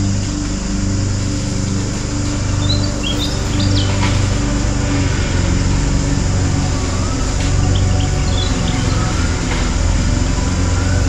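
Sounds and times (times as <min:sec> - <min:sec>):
steady low hum: 0:00.0 - 0:11.0
high bird chirps: 0:02.5 - 0:04.6, 0:07.6 - 0:09.7.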